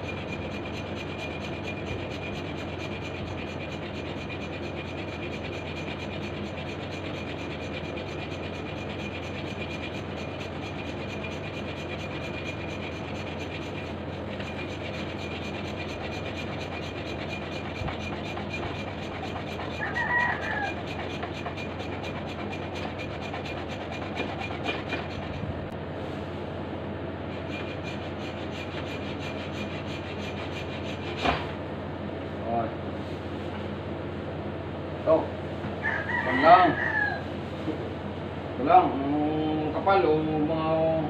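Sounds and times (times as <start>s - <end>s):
hand saw rasping: 0.0s - 25.5s, 27.3s - 31.5s.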